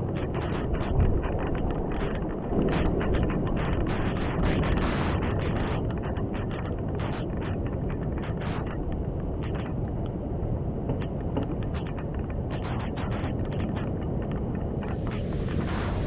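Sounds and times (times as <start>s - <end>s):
wind buffeting microphone: 0.0s - 16.0s
rushing hiss: 14.8s - 16.0s.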